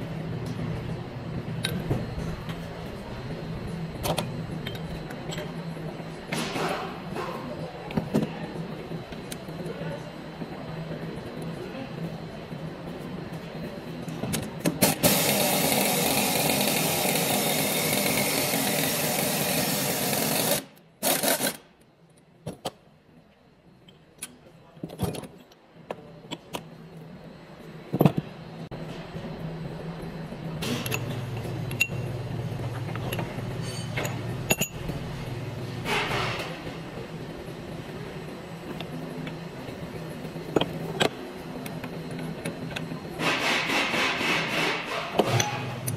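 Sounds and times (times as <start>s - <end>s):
power wrench running: 14.8s - 21.6s
low steady hum: 21.7s - 43.2s.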